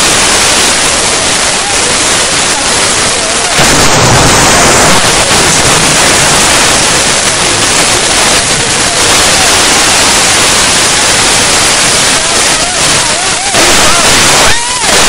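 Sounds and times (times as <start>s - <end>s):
flood water rushing: 0.0s - 15.0s.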